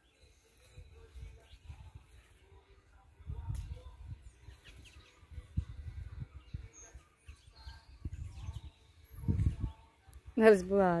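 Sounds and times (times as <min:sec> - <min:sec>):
small birds chirping: 0:00.0 - 0:11.0
low rumbling microphone noise: 0:03.2 - 0:10.6.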